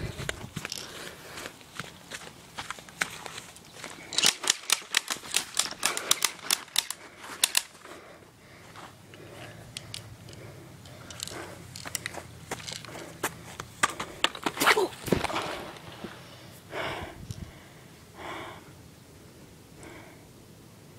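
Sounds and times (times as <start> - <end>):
toy guns clicking: 4.1 - 7.8, 9.7 - 13.0.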